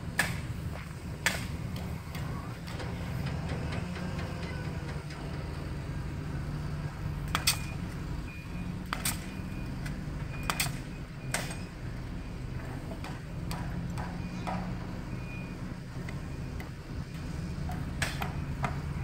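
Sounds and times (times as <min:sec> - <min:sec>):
engine humming: 0:00.0 - 0:19.0.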